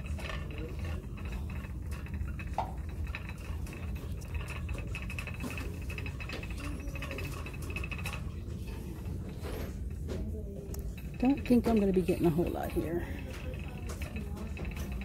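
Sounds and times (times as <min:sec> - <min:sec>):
shopping cart rolling on tile floor: 0:00.0 - 0:15.0.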